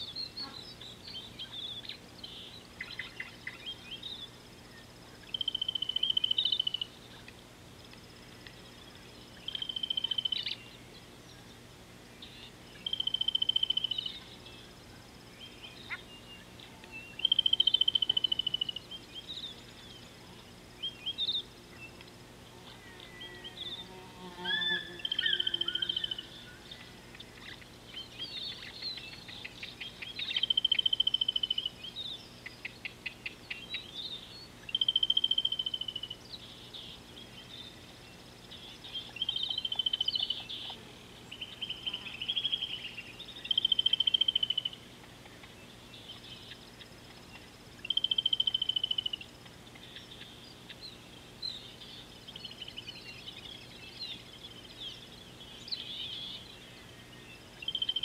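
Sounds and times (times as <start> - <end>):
bird chirps: 0.0 - 7.3, 8.5 - 11.6, 12.2 - 14.7, 15.3 - 22.1, 22.7 - 58.0
bird trilled wavering call: 24.4 - 27.6.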